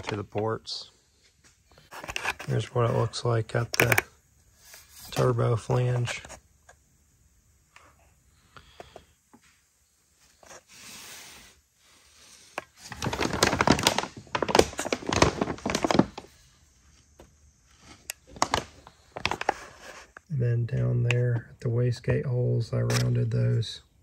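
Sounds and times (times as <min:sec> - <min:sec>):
paper crinkling and rustling: 0:12.6 - 0:16.4, 0:17.7 - 0:20.2.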